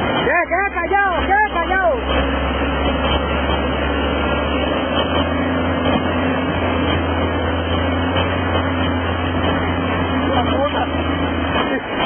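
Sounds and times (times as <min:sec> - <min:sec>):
bulldozer diesel engine drone: 0:00.0 - 0:12.0
rushing whitewater river: 0:00.0 - 0:12.0.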